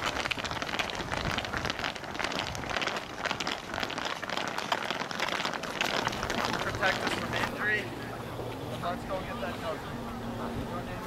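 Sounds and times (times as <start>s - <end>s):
cleated footsteps on pavement: 0.0s - 8.8s.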